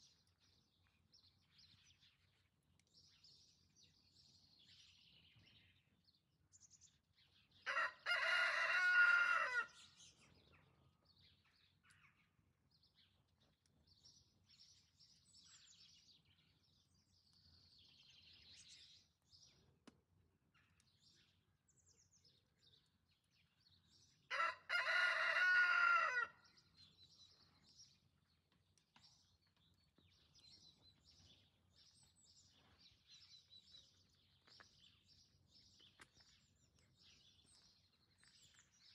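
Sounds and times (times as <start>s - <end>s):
small birds chirping: 0.0s - 38.9s
rooster crowing: 7.7s - 9.8s, 24.3s - 26.4s.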